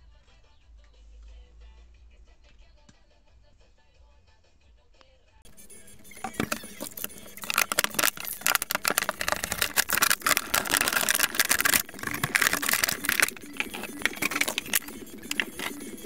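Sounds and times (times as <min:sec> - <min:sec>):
plastic bottle crinkling: 0:05.5 - 0:16.0.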